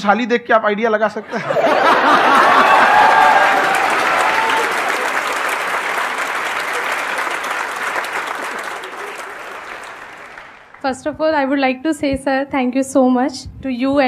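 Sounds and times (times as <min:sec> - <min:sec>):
studio audience applauding: 0:01.4 - 0:11.0.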